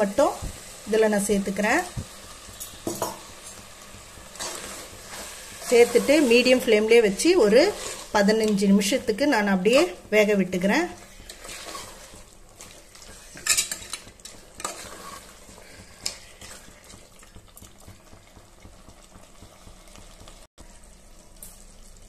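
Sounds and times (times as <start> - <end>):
chicken sizzling in pot: 0.0 - 22.0
metal spoon scraping pot: 4.4 - 9.0, 10.9 - 16.7.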